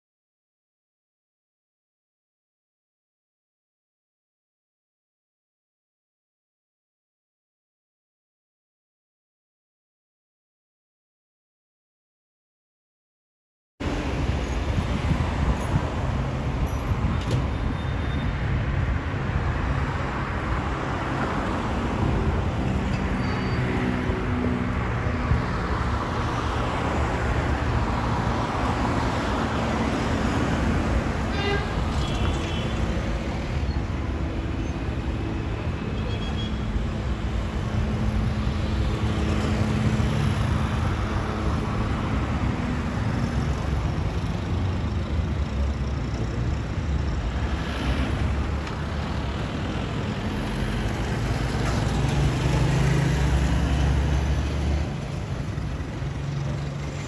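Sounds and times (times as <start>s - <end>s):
street traffic: 13.8s - 57.0s.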